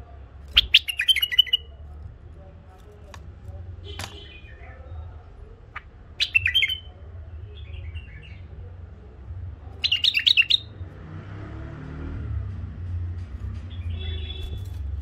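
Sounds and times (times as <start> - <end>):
bird warbling: 0.6 - 1.7, 5.7 - 6.9.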